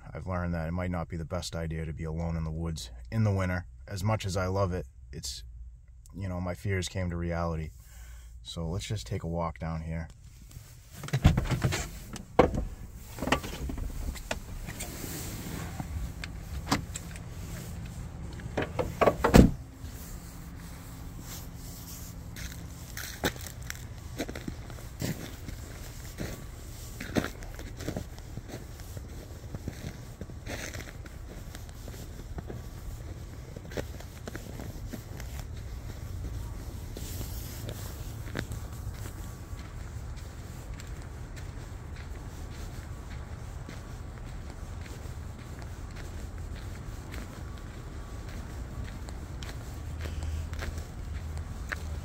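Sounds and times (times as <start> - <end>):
steady low rumble: 0.0 - 52.0
steady low hum: 2.8 - 52.0
rustling: 10.2 - 52.0
car door shutting thud: 11.0 - 15.0, 16.6 - 17.1, 18.5 - 19.6
footsteps crunching on snow: 11.7 - 52.0.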